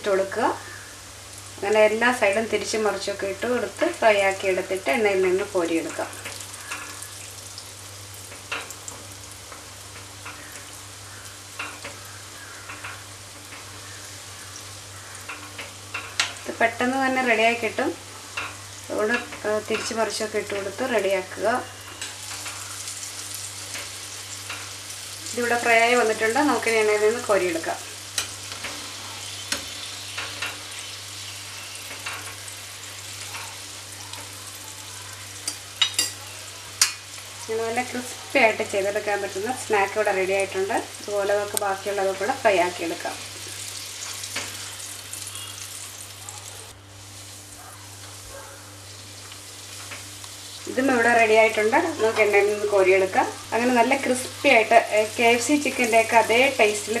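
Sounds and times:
food sizzling in oil: 0:00.0 - 0:57.0.

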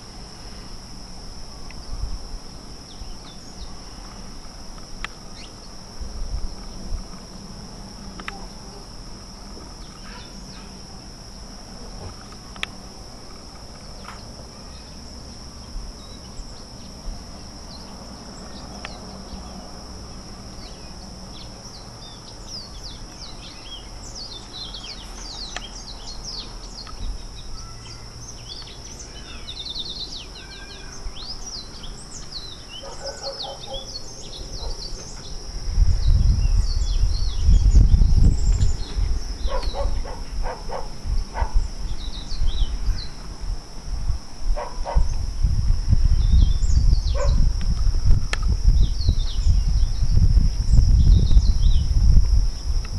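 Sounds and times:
songbirds chirping and trilling: 0:00.0 - 0:43.6, 0:44.6 - 0:52.9
wind buffeting microphone: 0:34.3 - 0:52.9.

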